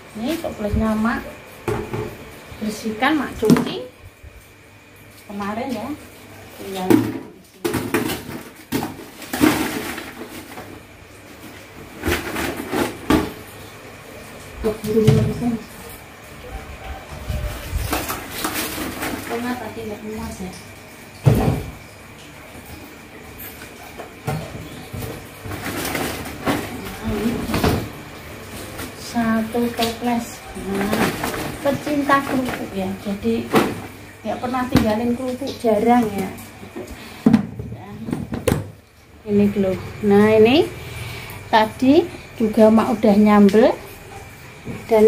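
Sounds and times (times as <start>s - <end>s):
crackers rustling: 7.7s - 14.4s, 17.0s - 19.8s, 23.6s - 34.2s.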